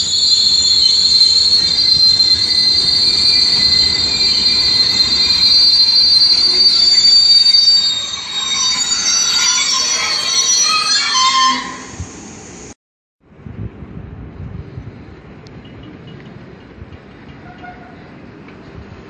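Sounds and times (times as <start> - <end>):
train wheels squealing on rails: 0.0 - 12.8, 17.1 - 18.2
low rumble of train rolling: 0.0 - 19.0.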